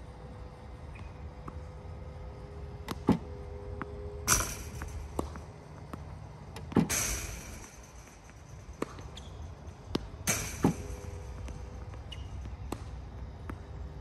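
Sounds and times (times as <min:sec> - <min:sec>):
faint motor hum: 0:00.0 - 0:14.0
tennis balls hit and bouncing: 0:00.9 - 0:14.0
ball machine firing pops: 0:04.3 - 0:06.0, 0:09.9 - 0:13.0.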